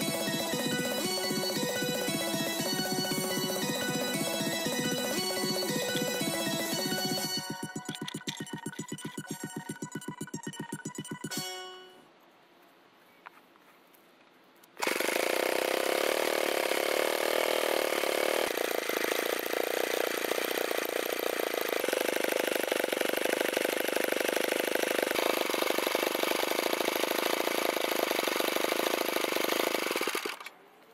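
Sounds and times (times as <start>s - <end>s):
stationary engine idling: 0.0s - 11.3s.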